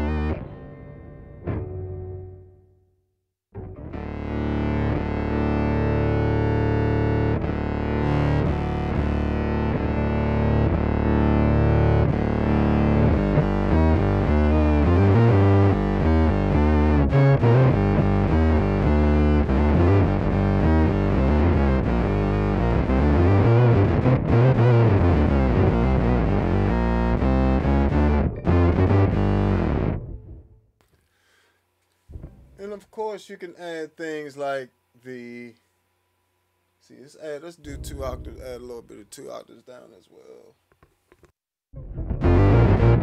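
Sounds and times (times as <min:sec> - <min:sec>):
distorted electric bass line: 0:00.0 - 0:01.6, 0:03.6 - 0:30.6, 0:32.1 - 0:32.7, 0:37.7 - 0:38.8, 0:41.8 - 0:43.0.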